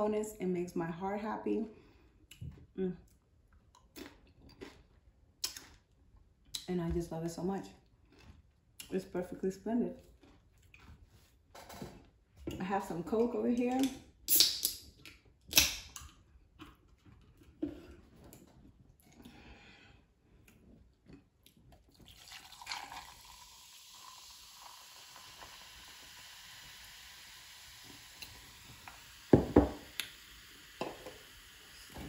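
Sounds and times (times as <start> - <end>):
soda fizzing: 21.9 - 32.0.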